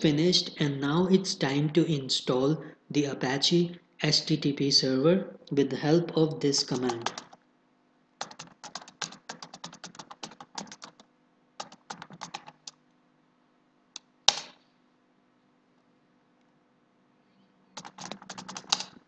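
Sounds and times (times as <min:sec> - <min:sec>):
keyboard keys clicking: 0:06.7 - 0:07.4, 0:08.2 - 0:11.0, 0:11.6 - 0:12.8, 0:17.8 - 0:19.0.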